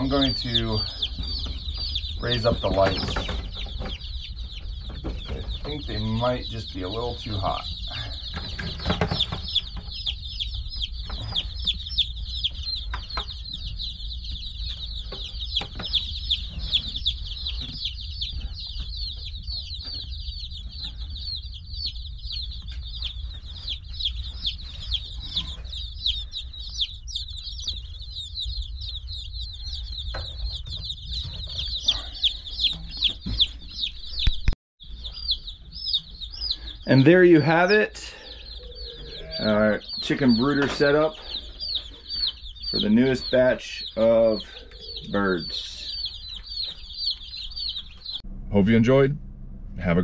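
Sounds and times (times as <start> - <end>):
steady low hum: 0.0 - 33.4, 34.9 - 50.0
baby chicks peeping: 0.0 - 49.1.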